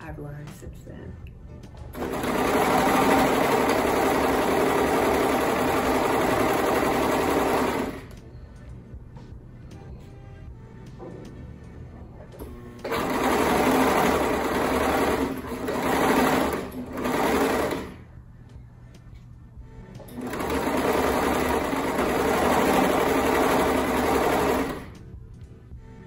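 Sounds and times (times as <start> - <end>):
overlock sewing machine stitching: 1.9 - 8.1, 12.4 - 18.0, 20.0 - 25.0.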